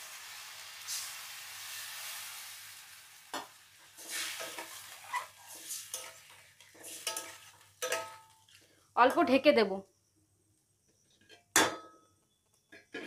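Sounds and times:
metal spatula scraping a pan: 3.3 - 9.4.

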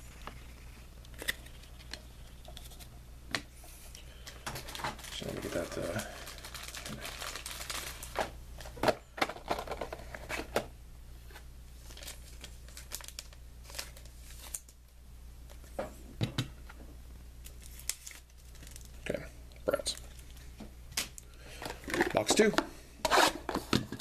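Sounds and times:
plastic wrapper crinkling: 4.2 - 9.9, 11.8 - 14.8, 17.4 - 19.0.

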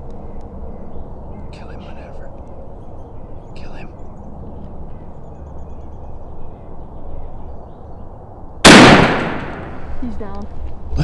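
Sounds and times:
shotgun shot: 8.6 - 9.9.

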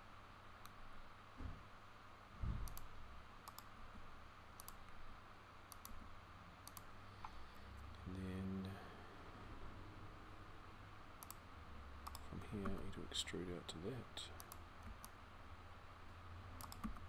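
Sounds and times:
faint room noise: 0.0 - 17.0
mouse and keyboard clicks: 2.6 - 3.7, 6.6 - 7.4, 11.2 - 11.4, 12.0 - 12.9, 16.6 - 17.0.

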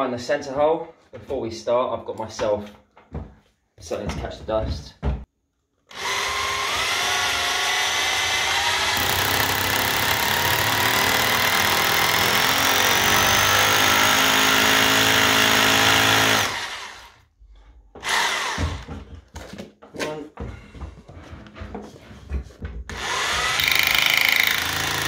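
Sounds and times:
hammer drill drilling into wall: 5.9 - 17.2, 18.0 - 18.9, 22.9 - 25.0.

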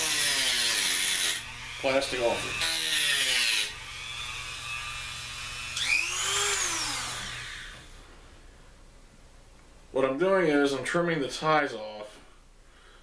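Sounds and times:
rotary tool cutting plastic: 0.0 - 7.8
motor winding down: 0.0 - 7.9.

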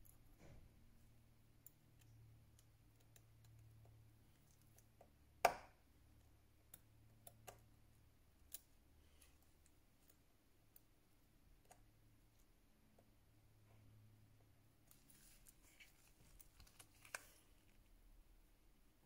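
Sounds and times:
small clicks and taps of tools: 1.6 - 5.6.

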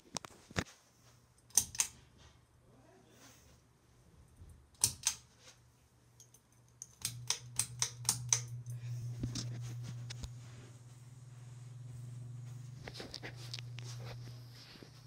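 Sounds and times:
ceiling fan motor hum: 0.2 - 15.0
sharp clicks: 1.5 - 2.0, 4.8 - 5.2, 6.2 - 8.8.

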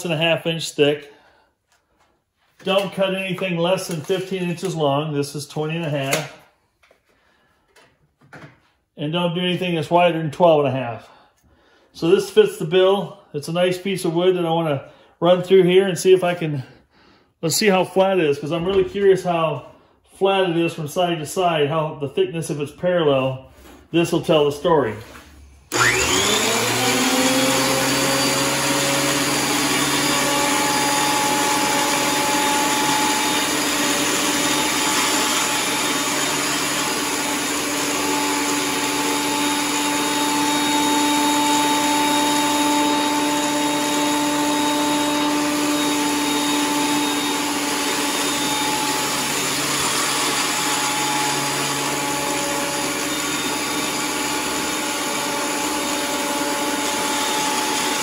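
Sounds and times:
thickness planer motor whining: 25.7 - 58.0.

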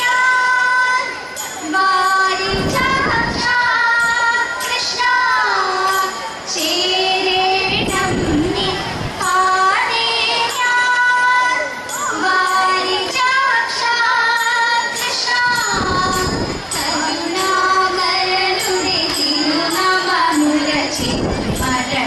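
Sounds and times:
young women singing: 0.0 - 22.0
light percussive beat: 9.2 - 22.0.

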